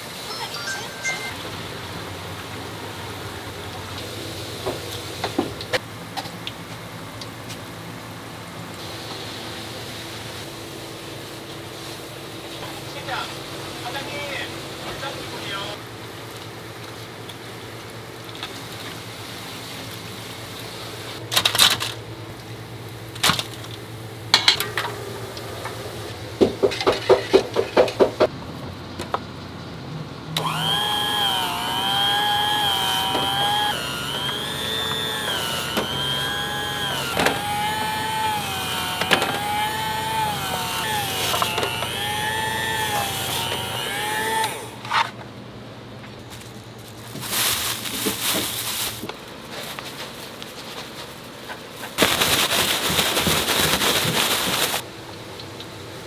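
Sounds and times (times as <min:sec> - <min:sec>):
food slicer motor whine: 0:30.4 - 0:45.1.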